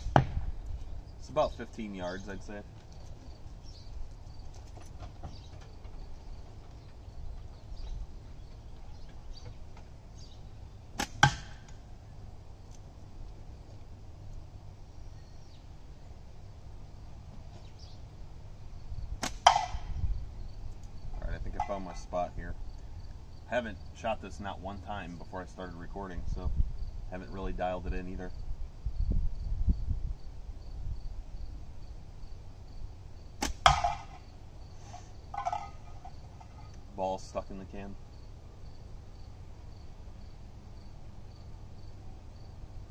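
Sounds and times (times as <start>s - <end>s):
faint insect chirping: 0.7s - 10.8s, 20.0s - 25.3s, 26.5s - 27.3s, 28.3s - 42.9s
steel ball hitting metal can: 11.0s - 11.7s, 19.2s - 19.9s, 33.4s - 34.3s, 35.4s - 36.2s.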